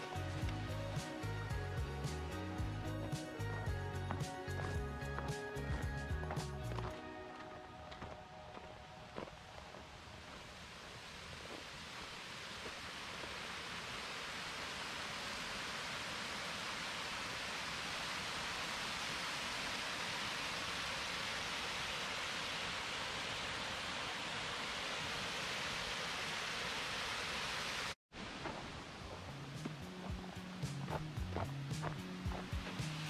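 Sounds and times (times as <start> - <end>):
small waterfall rushing: 9.6 - 31.0.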